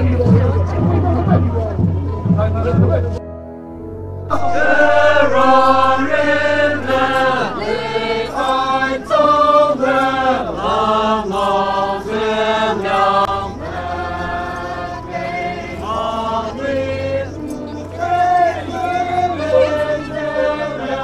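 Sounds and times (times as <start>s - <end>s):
group chanting in unison: 4.3s - 21.0s.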